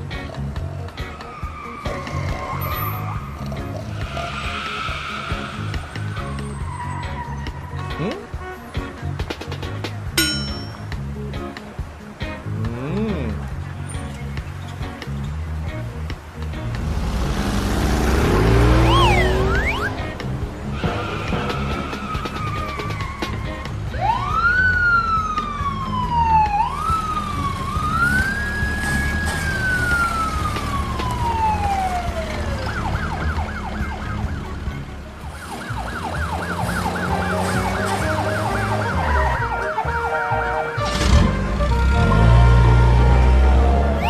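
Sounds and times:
emergency siren wailing and yelping: 0:01.0 - 0:07.8, 0:18.6 - 0:20.2, 0:20.8 - 0:41.0.

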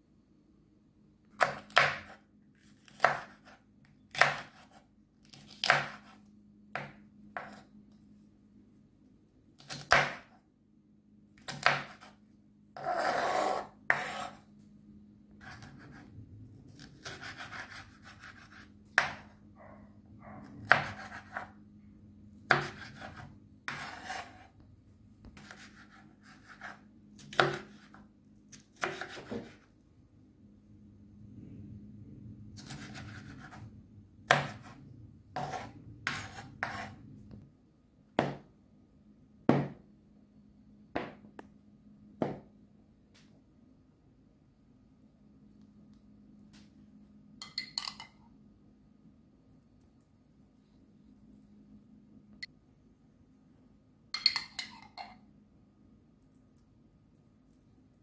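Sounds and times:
knife chopping on wooden board: 0:01.4 - 0:02.2, 0:02.8 - 0:06.2, 0:06.8 - 0:07.6, 0:09.6 - 0:10.4, 0:11.4 - 0:12.1, 0:16.8 - 0:19.3, 0:20.6 - 0:21.5, 0:22.5 - 0:24.4, 0:25.4 - 0:29.6, 0:34.3 - 0:34.8, 0:35.4 - 0:36.9, 0:38.2 - 0:38.5, 0:39.5 - 0:39.8, 0:42.2 - 0:42.5.

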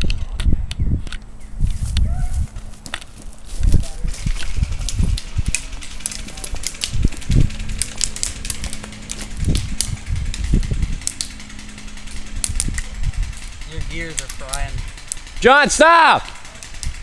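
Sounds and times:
footsteps on dry leaves: 0:01.3 - 0:13.6.

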